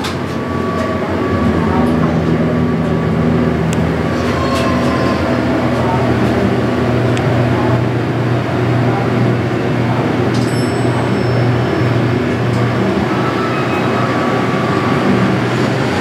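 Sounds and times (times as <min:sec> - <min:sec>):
elevator mechanical hum: 0:00.0 - 0:16.0.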